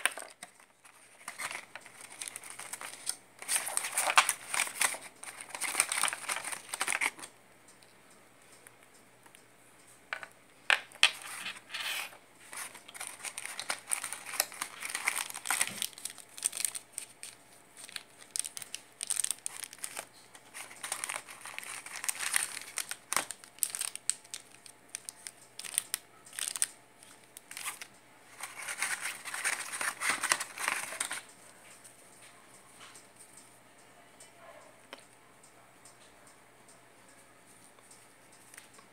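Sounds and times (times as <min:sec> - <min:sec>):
plastic bags crinkling: 0:00.0 - 0:07.3, 0:10.8 - 0:31.3.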